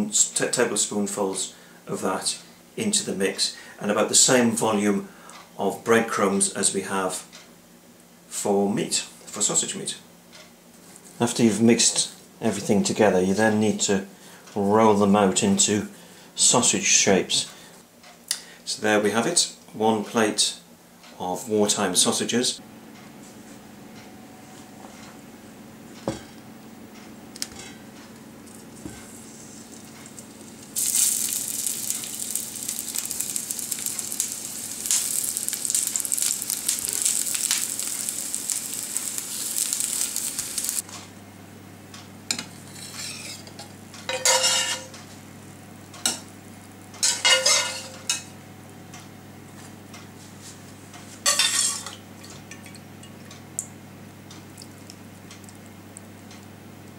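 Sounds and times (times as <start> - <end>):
sausages sizzling in oil: 29.0 - 40.8, 42.5 - 43.4
crockery and cutlery clinking: 42.3 - 44.9, 47.0 - 48.3.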